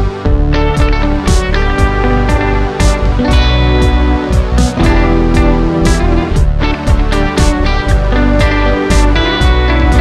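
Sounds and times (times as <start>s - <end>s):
guitar-led music with steady beat: 0.0s - 10.0s
sharp percussion hits: 1.3s - 8.2s.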